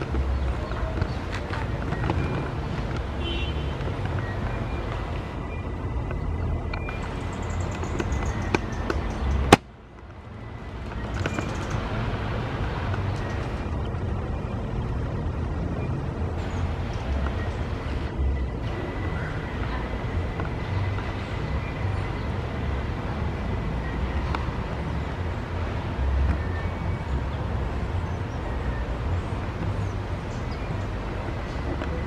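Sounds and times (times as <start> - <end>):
low rumble of background noise: 0.0 - 32.0.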